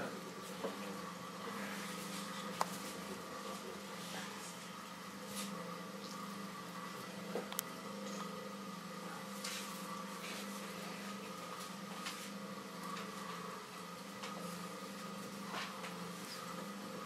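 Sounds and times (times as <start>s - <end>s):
potter's wheel motor humming: 0.0s - 17.0s.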